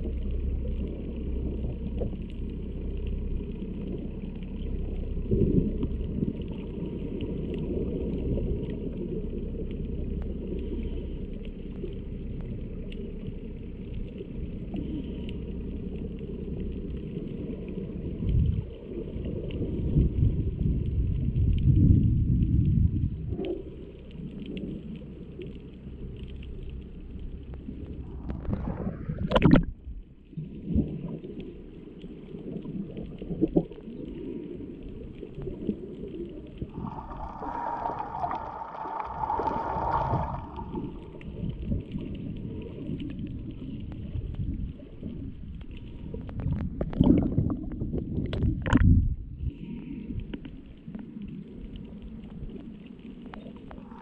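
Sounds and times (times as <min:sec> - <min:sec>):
droning tone through water: 0:00.0 - 0:54.0
underwater rush of water: 0:00.0 - 0:54.0
underwater knocks: 0:29.2 - 0:29.8.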